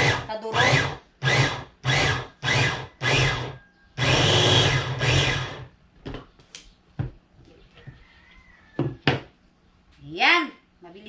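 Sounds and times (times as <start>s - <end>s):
food processor motor pulsing: 0.0s - 5.7s.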